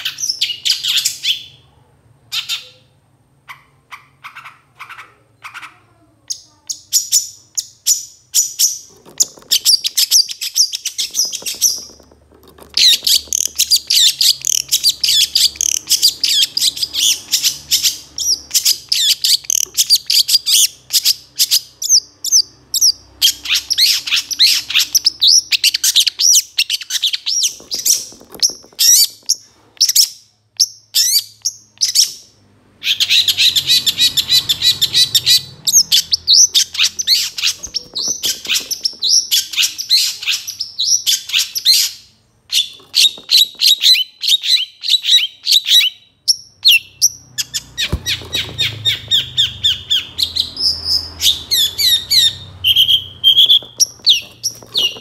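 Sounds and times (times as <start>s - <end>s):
bird singing chirps and trills: 42.6s - 55.0s.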